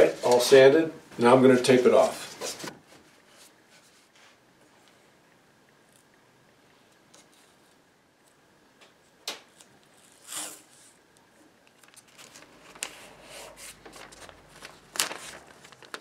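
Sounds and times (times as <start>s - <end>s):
tape pulled off roll and torn: 9.2s - 11.0s
newspaper rustling and crinkling: 11.6s - 16.0s.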